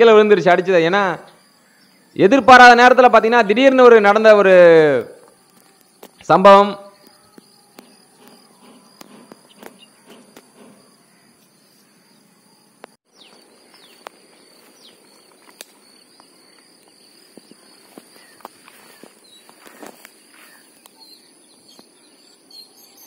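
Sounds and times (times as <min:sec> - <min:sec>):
high insect drone: 0:05.1 - 0:23.0.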